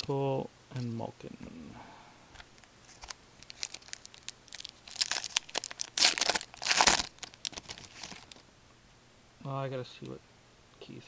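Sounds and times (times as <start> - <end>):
wrapper crinkling: 2.8 - 8.4
wrapper ripping: 2.9 - 8.4.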